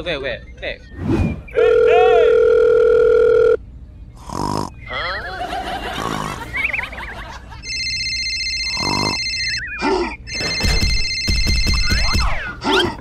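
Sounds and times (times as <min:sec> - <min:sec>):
electronic telephone ring: 0:01.7 - 0:03.6, 0:07.6 - 0:09.7, 0:10.3 - 0:11.9.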